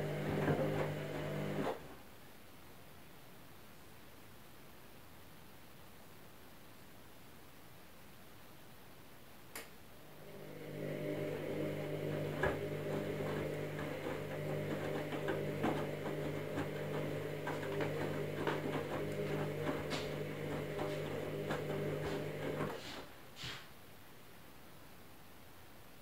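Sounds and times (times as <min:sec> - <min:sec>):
washing machine motor humming: 0:00.0 - 0:02.0, 0:10.0 - 0:23.1.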